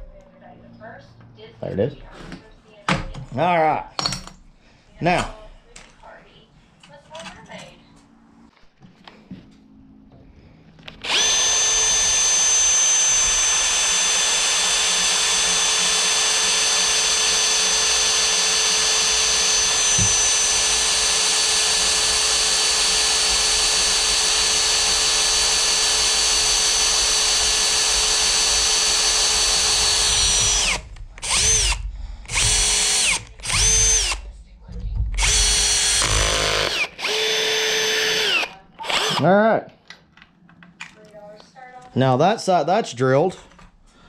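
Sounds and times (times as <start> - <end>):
cordless drill whining through steel: 10.8 - 34.3, 35.1 - 39.3.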